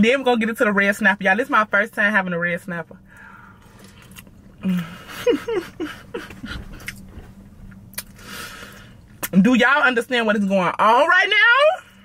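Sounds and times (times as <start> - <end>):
person humming mmm: 4.6 - 5.2.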